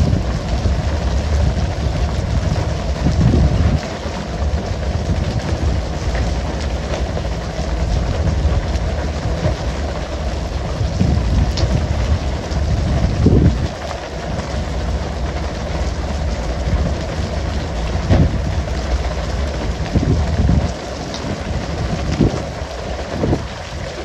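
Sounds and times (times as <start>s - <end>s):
deep engine rumble: 0.0s - 24.0s
water spray and sea wash: 0.0s - 24.0s.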